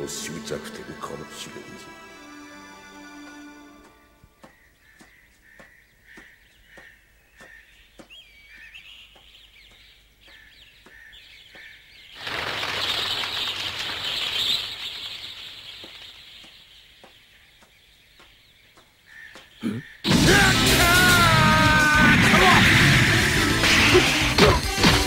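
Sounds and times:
faint bird chirps: 4.4s - 20.1s
loud music: 20.1s - 25.0s.

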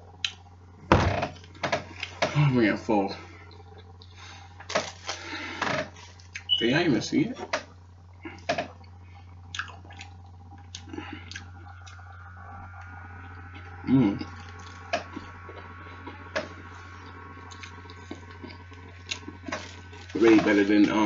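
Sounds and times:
steady low hum: 0.0s - 21.0s
wet chewing and biting: 9.5s - 20.2s
short vocal sound: 13.8s - 14.4s.

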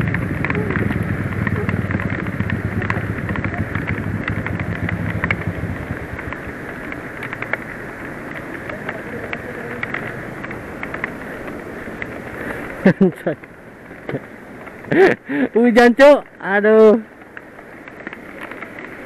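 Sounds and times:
motorcycle engine running: 0.0s - 15.0s
rain hiss: 0.0s - 19.0s
raindrops pattering: 0.0s - 19.0s.

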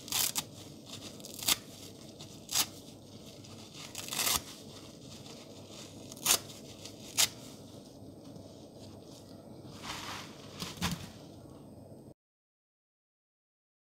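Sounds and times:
sponge being ripped apart: 0.0s - 0.6s, 1.2s - 1.8s, 2.4s - 2.8s, 3.8s - 4.6s, 6.1s - 7.5s.

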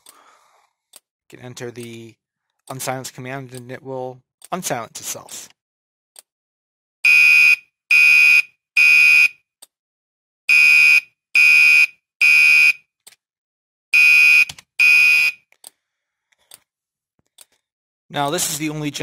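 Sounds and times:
fire alarm horn blasts: 7.0s - 9.4s, 10.5s - 12.8s, 14.0s - 15.4s.

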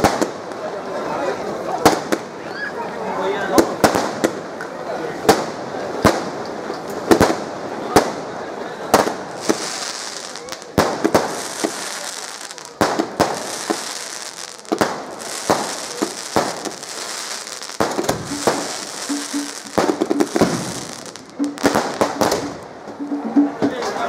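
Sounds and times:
firework bangs: 0.0s - 0.6s, 1.8s - 2.4s, 3.6s - 4.6s, 5.2s - 22.7s
fireworks crackling hiss: 3.7s - 22.7s.

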